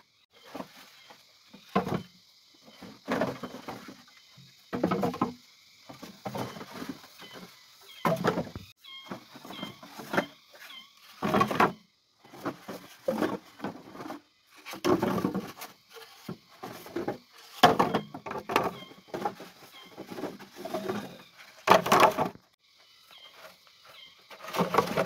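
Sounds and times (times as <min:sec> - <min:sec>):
knocking and rustling: 0:00.4 - 0:22.5, 0:24.3 - 0:25.0
faint high chirps: 0:07.2 - 0:11.2.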